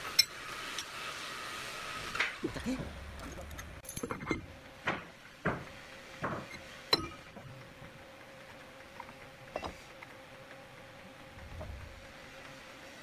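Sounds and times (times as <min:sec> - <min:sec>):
sharp metallic knocks: 0:04.1 - 0:07.3.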